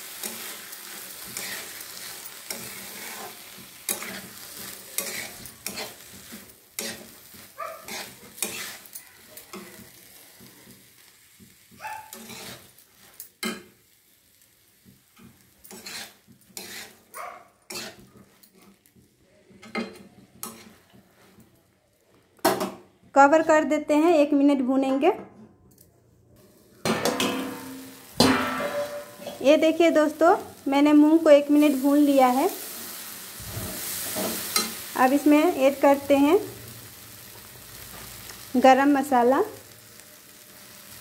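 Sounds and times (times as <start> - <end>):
frying sizzle: 0.0 - 21.5, 26.4 - 41.0
metal spatula scraping a pan: 0.1 - 13.7, 15.2 - 18.9, 19.6 - 21.4, 26.8 - 30.4, 31.0 - 36.5.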